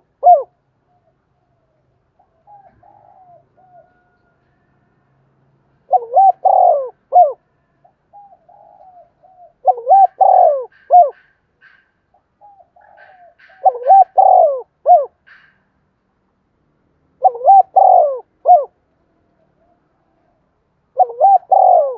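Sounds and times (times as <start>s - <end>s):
dove cooing: 0.0s - 1.6s, 2.2s - 4.2s, 5.9s - 7.5s, 8.1s - 11.8s, 12.4s - 15.6s, 17.2s - 18.8s, 19.4s - 21.9s.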